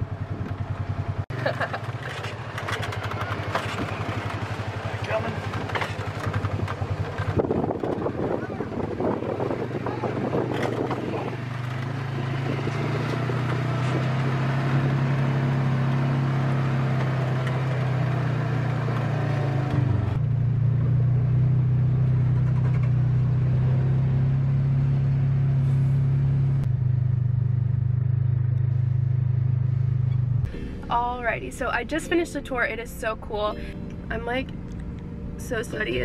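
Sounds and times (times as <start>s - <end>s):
vehicle engine humming: 0.0s - 36.0s
road noise hiss: 25.4s - 26.6s.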